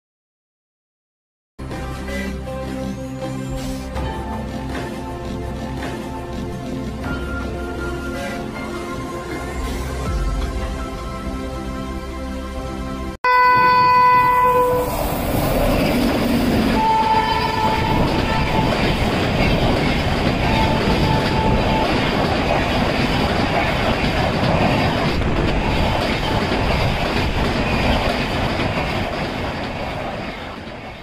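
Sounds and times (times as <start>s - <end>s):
train wheels rumbling on rails: 3.7s - 11.7s, 13.7s - 31.0s
train horn: 7.8s - 8.8s, 13.2s - 15.0s, 16.8s - 19.0s, 20.4s - 22.0s.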